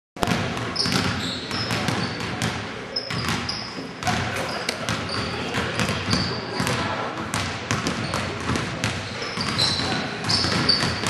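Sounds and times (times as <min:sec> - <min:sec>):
basketball bouncing on hardwood: 0:00.2 - 0:04.3, 0:04.9 - 0:11.0
players' voices: 0:00.3 - 0:11.0
sneaker squeaks: 0:00.7 - 0:06.9, 0:07.8 - 0:11.0.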